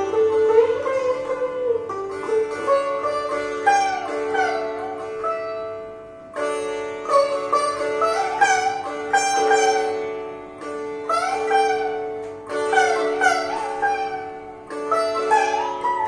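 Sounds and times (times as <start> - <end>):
sitar melody: 0.0 - 16.0.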